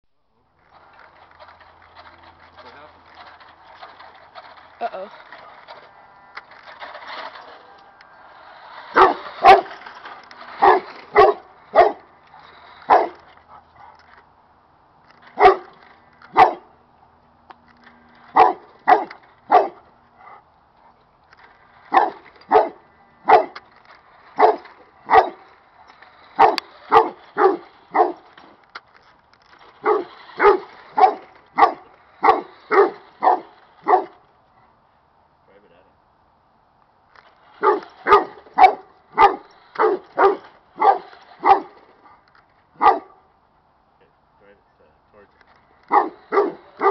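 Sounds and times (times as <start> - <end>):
dog barking: 10.6 - 12.0, 12.9 - 13.2, 15.4 - 15.7, 16.4 - 16.7, 18.4 - 19.8, 21.9 - 23.6, 24.4 - 25.4, 26.4 - 28.2, 29.8 - 34.1, 37.6 - 41.7, 42.8 - 43.2, 45.9 - 46.9.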